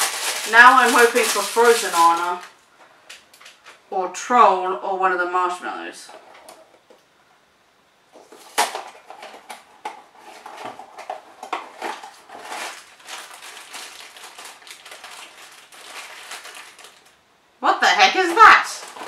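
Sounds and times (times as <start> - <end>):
foil bag rustling and crinkling: 0.0 - 2.6, 8.2 - 17.2, 18.2 - 19.0
cardboard box snapping open: 8.4 - 9.6.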